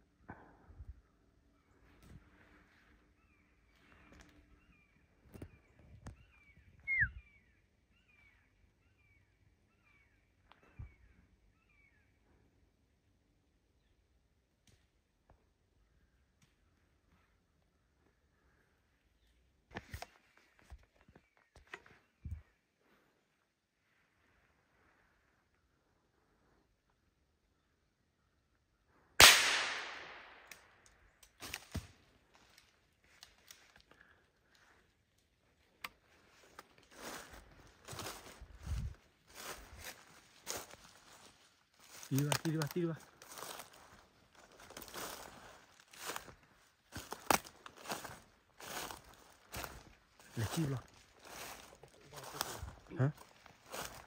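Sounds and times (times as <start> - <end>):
bird chirping: 1.0 - 12.3
gunshot: 29.2 - 30.5.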